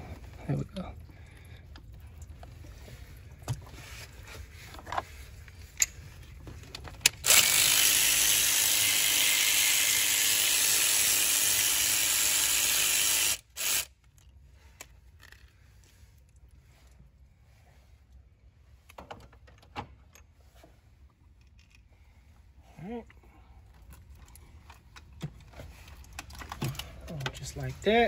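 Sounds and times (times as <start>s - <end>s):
power tool hissing: 7.3s - 13.9s.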